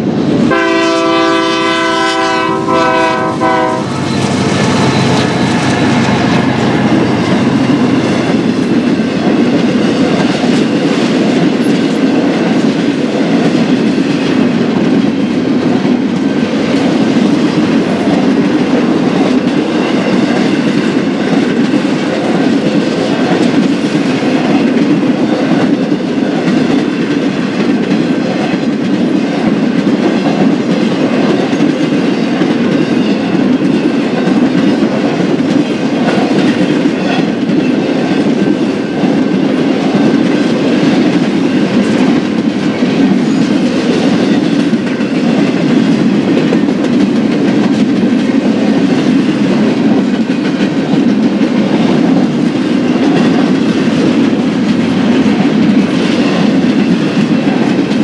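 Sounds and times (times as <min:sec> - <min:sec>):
freight train cars rolling: 0:00.0 - 0:58.0.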